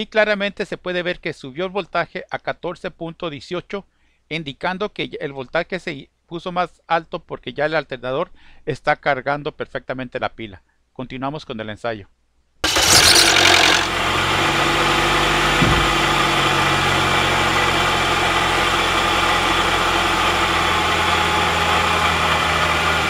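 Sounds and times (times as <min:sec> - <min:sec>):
car engine idling: 0:12.6 - 0:23.0.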